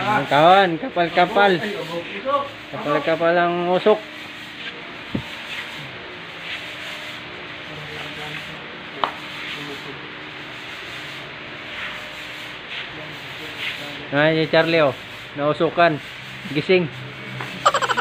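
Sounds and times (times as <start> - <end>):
fogger hissing: 17.6 - 18.0.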